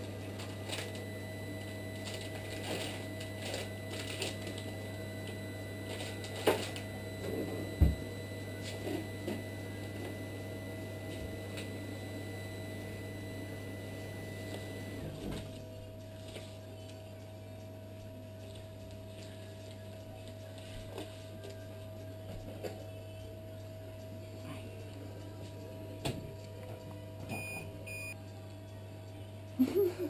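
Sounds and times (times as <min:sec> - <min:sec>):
electrical hum of equipment: 0:00.0 - 0:30.0
instruments and packaging handled: 0:00.4 - 0:07.8.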